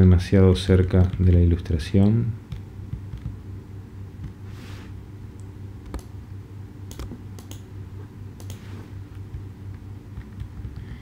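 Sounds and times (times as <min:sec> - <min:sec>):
steady low hum: 0:00.0 - 0:11.0
mouse and keyboard clicks: 0:06.9 - 0:07.6.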